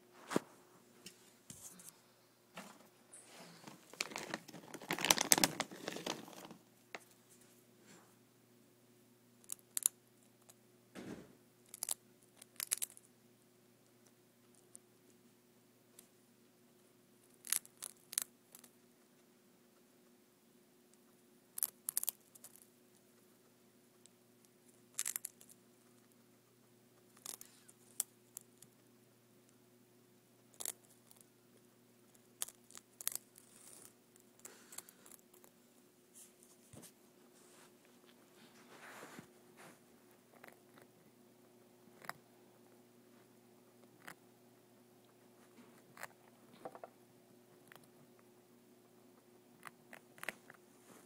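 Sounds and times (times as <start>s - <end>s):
faint steady hum: 0.0s - 51.0s
guinea pig crunching treat: 3.6s - 7.2s, 9.3s - 10.6s, 11.6s - 15.2s, 15.9s - 20.2s, 20.8s - 29.6s, 30.3s - 36.4s, 40.2s - 50.7s.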